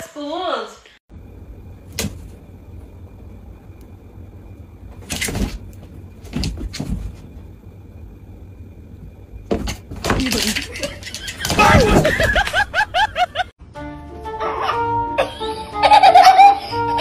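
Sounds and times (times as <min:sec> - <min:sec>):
low steady hum: 0:01.1 - 0:13.5
knocks and scuffles: 0:04.9 - 0:07.5, 0:09.5 - 0:10.4.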